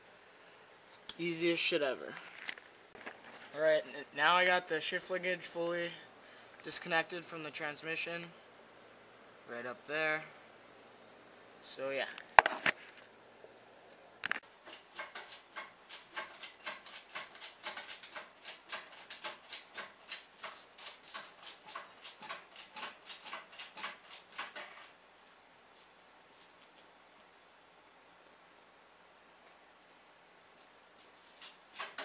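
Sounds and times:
ratchet clicking: 14.6s - 24.6s.

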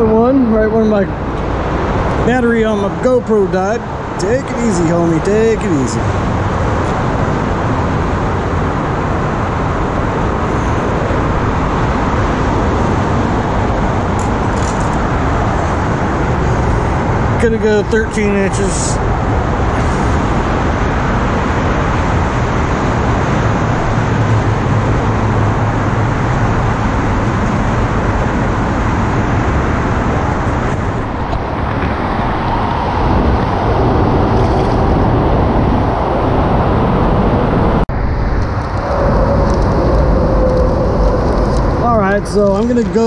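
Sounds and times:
road traffic rumble and hiss: 0.0s - 43.0s.

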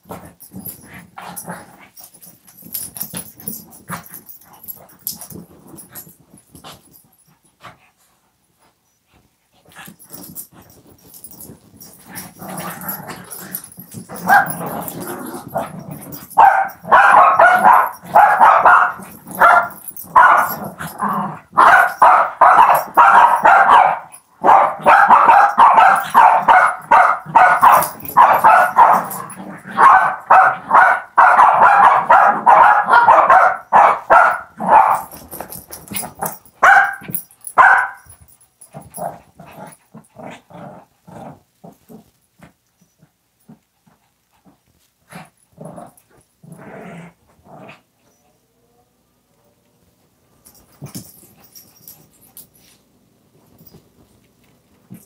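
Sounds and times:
dogs barking and growling: 9.7s - 48.0s.

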